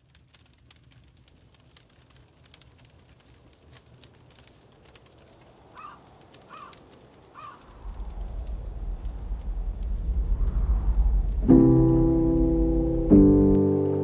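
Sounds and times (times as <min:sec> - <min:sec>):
campfire crackling: 0:00.0 - 0:14.0
crow cawing: 0:05.7 - 0:07.8
low rumble: 0:07.7 - 0:14.0.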